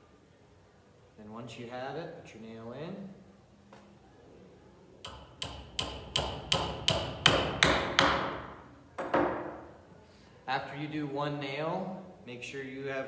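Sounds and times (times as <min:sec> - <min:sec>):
hammer driving nail into wood: 0:05.1 - 0:09.5.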